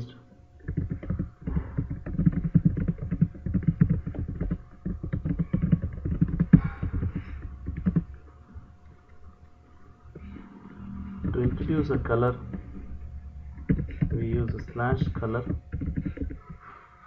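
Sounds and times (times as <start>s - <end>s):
typing on keyboard: 0.6s - 8.2s, 13.6s - 16.6s.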